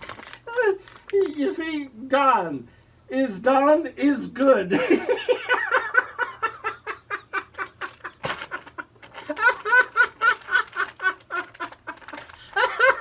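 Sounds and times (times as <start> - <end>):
laughter in bursts: 4.7 - 13.0.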